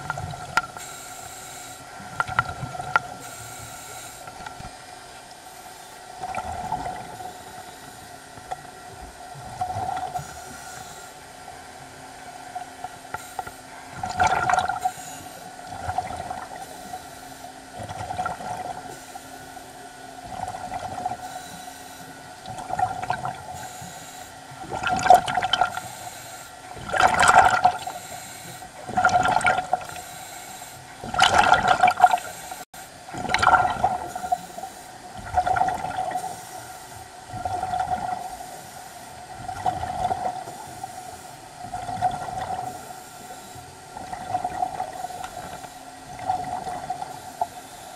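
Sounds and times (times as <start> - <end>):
steady hum: 0.0 - 47.9
underwater regulator breathing: 3.2 - 4.6, 25.4 - 26.6, 27.3 - 32.6, 40.4 - 43.7, 44.8 - 47.9
rush of air and bubbles: 13.9 - 15.0, 15.7 - 16.7, 22.4 - 23.6, 24.6 - 25.8, 26.7 - 28.0, 28.8 - 30.0, 31.0 - 32.3, 33.0 - 34.4, 35.1 - 36.4, 37.2 - 38.5, 39.3 - 40.7, 41.6 - 42.9, 43.9 - 45.5, 46.1 - 47.2.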